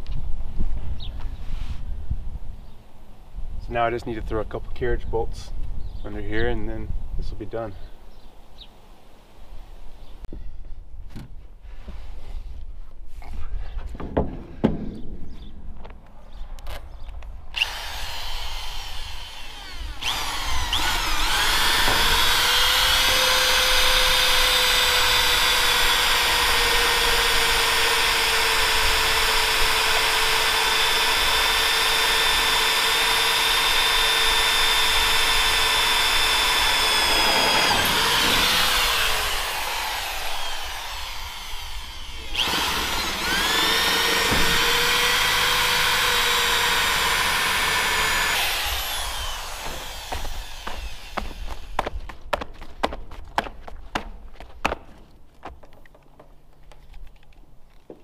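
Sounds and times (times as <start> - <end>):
electric drill whining: 17.5 - 51.9.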